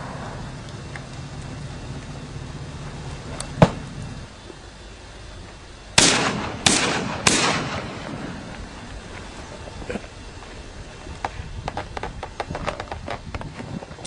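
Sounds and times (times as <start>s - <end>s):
shotgun shots with echo: 6.0s - 8.4s
sharp crack: 6.0s - 8.8s.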